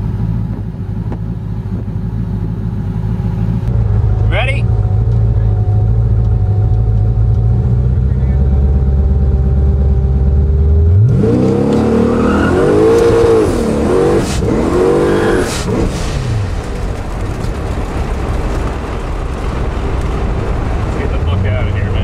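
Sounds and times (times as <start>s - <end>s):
car engine revving: 0.0s - 22.0s
tyres spinning in burnout: 11.1s - 22.0s
steady rushing noise: 13.1s - 22.0s.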